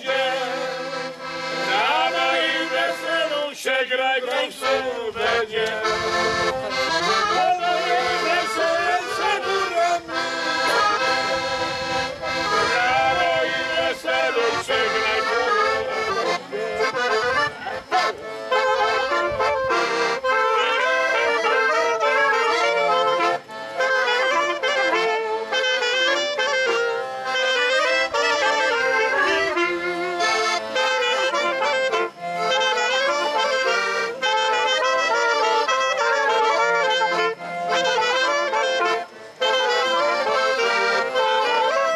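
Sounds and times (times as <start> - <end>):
clarinet: 0.0 - 3.6, 4.2 - 41.9
accordion: 0.0 - 41.9
trumpet: 12.0 - 41.9.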